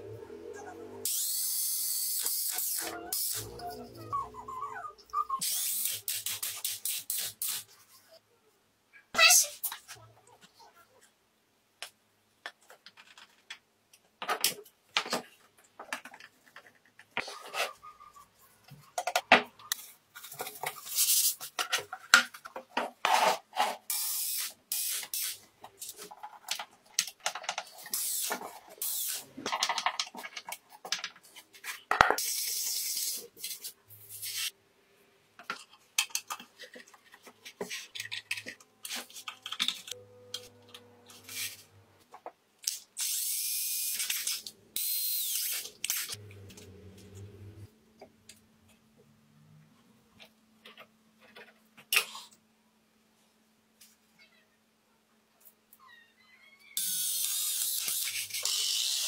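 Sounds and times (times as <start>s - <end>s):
clicks and knocks on small parts: 24.8s - 31.3s, 35.4s - 40.8s.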